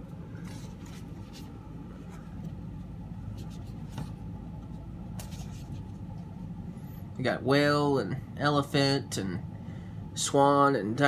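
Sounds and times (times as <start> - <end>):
low room hum: 0.0 - 11.0
cardboard sheets rubbing: 0.4 - 2.6, 5.2 - 6.0.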